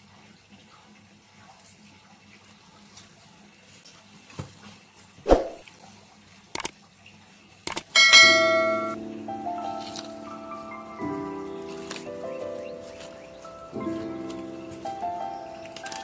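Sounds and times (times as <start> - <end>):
clicks: 7.7 - 7.9
bright ringing chime: 8.0 - 9.0
music: 8.2 - 16.0
plastic bag rustling: 11.3 - 16.0.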